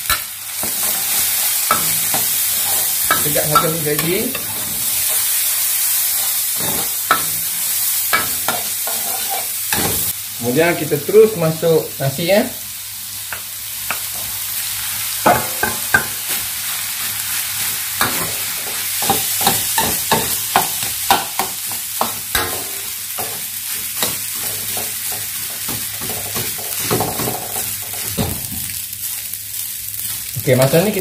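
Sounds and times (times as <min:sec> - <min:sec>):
rice sizzling: 0:00.0 - 0:31.0
metal ladle scraping a wok: 0:00.1 - 0:05.3, 0:08.1 - 0:10.1.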